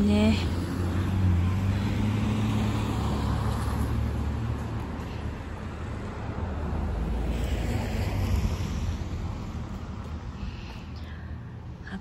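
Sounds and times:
vehicle engine humming: 0.0 - 7.2
road noise: 0.0 - 12.0.

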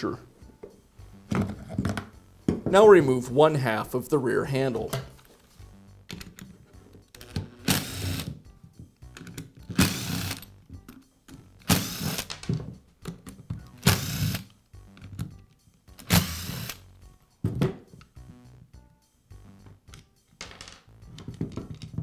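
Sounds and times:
cordless screwdriver whirring: 7.7 - 8.3, 11.7 - 12.3, 13.8 - 14.4, 16.0 - 16.8.

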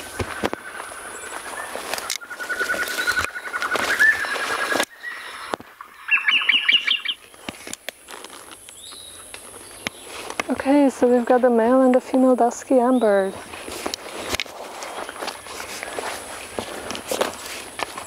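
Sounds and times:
bird song repeated notes: 0.0 - 7.2.

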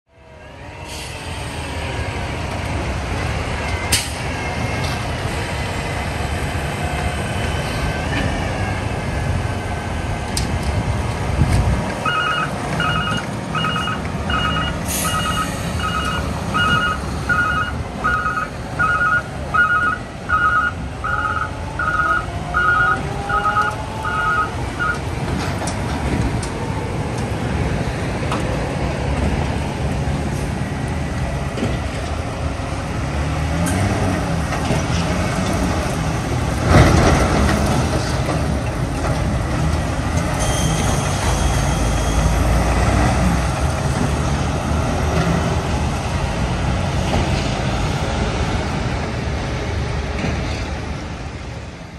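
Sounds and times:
diesel truck engines: 0.1 - 51.9
truck reversing alarm beeping: 12.0 - 25.1.

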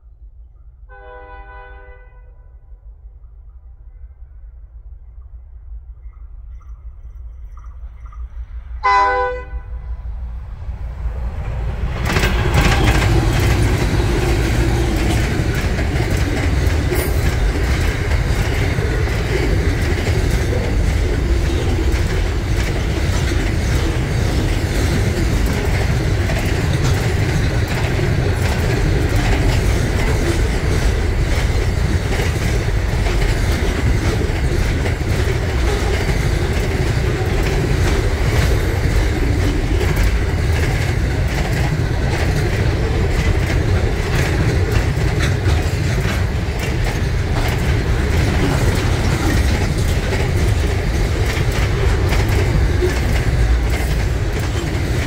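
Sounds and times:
train wheels rumbling on rail: 5.0 - 55.0
wheels clicking over rail joints: 11.3 - 55.0.

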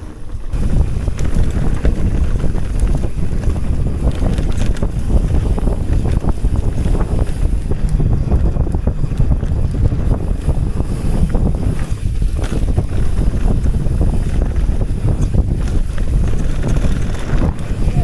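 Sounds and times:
bike tyres rumbling on dirt: 0.0 - 18.0
wind buffeting microphone: 0.0 - 18.0.

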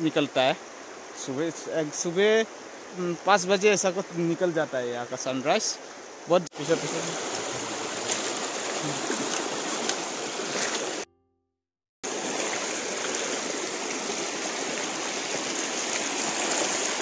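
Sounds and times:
river water rushing over rocks: 6.1 - 11.1, 12.1 - 17.0.

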